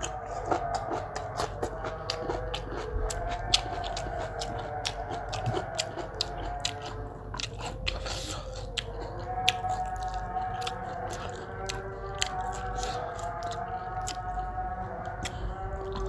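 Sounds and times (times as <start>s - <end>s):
person chewing crunchy food: 0.0s - 16.0s.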